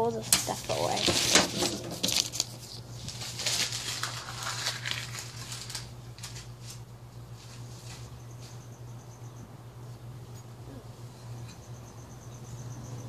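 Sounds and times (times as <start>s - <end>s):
paper rustling and crinkling: 0.0s - 8.6s.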